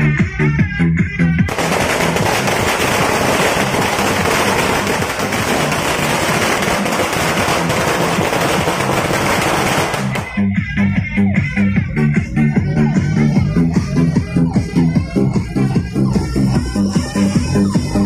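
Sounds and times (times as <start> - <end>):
music with a steady beat: 0.0 - 18.0
string of firecrackers crackling: 1.5 - 10.4.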